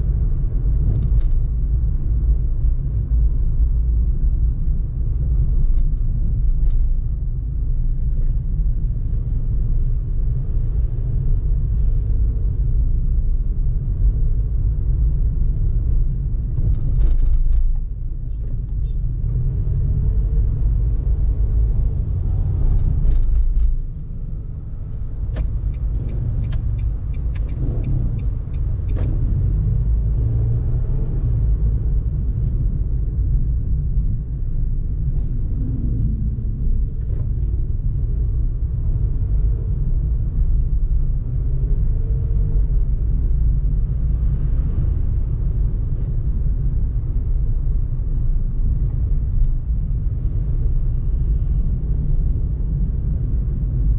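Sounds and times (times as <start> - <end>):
car road and engine rumble: 0.0 - 53.9
light ticks: 25.3 - 29.1.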